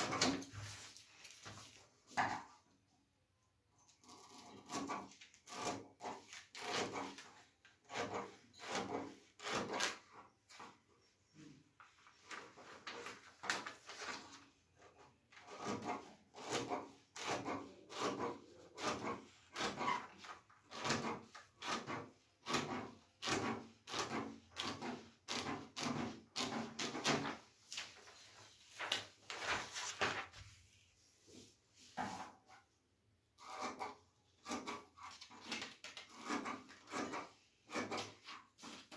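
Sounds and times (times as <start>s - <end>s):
paper rustling: 0.0s - 2.5s, 5.0s - 8.4s, 11.8s - 16.0s, 24.6s - 32.4s, 34.5s - 37.0s
scissors snipping paper: 33.4s - 38.9s.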